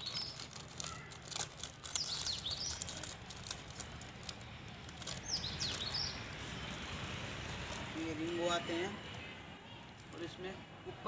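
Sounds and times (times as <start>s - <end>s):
small bird chirping: 0.0s - 3.6s, 5.0s - 6.9s
plastic snack packet rustling: 0.0s - 8.3s.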